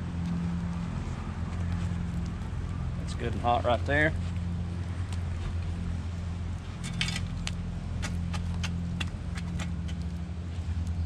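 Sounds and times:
steady low rumble: 0.0s - 11.0s
shovel scraping through coals: 6.8s - 10.0s.

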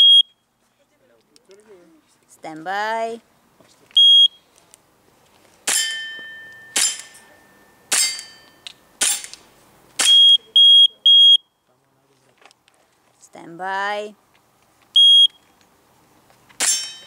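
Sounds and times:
shot timer beeps: 0.0s - 0.4s, 4.0s - 4.4s, 10.0s - 11.5s, 15.0s - 15.4s
steel plate target ringing: 5.7s - 9.3s, 16.6s - 17.0s
airsoft pistol shots: 6.8s - 7.2s, 7.9s - 8.3s, 9.0s - 9.4s, 10.0s - 10.3s, 16.6s - 17.0s.

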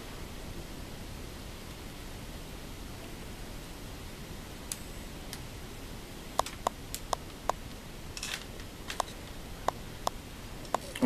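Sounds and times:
steady low hiss: 0.0s - 11.0s
sharp clicks: 6.4s - 7.6s.

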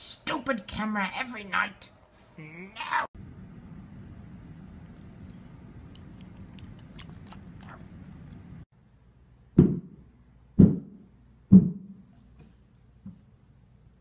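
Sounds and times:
dog chewing treat: 4.8s - 8.6s
heavy thumps: 10.6s - 12.0s.

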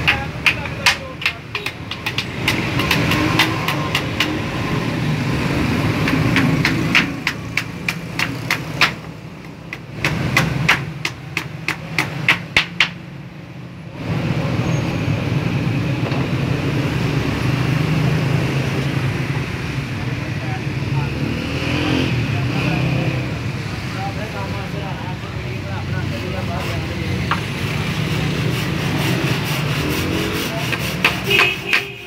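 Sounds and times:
hammer driving nails into wood: 0.0s - 4.5s, 6.0s - 13.0s.

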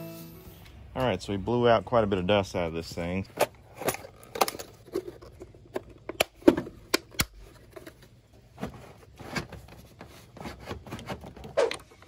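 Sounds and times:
plastic scraping and rustling: 3.3s - 12.0s.

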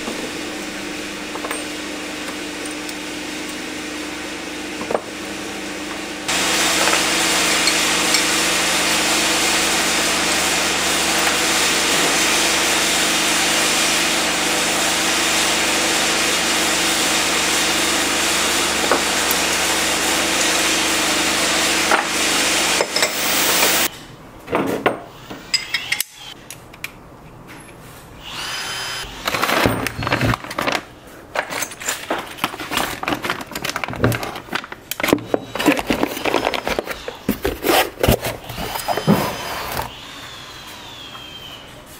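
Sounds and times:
plastic bag crinkling: 32.1s - 38.0s.

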